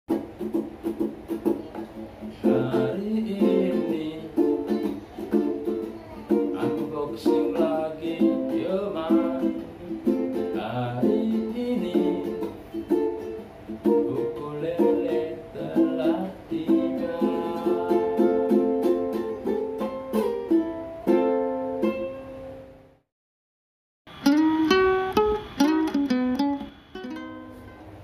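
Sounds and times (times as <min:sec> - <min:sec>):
ukulele strumming: 0:00.1 - 0:22.8, 0:24.1 - 0:28.0
man singing: 0:02.4 - 0:12.6, 0:13.8 - 0:19.2.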